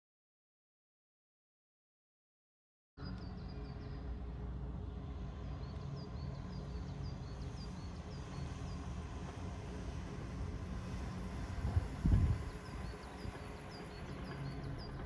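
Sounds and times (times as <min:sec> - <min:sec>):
low outdoor rumble: 0:03.0 - 0:15.0.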